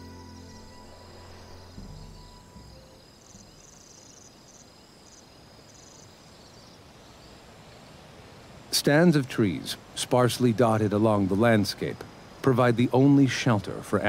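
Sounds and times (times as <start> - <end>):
soft background music: 0.0 - 3.8
high-pitched insect chirping: 0.0 - 7.4.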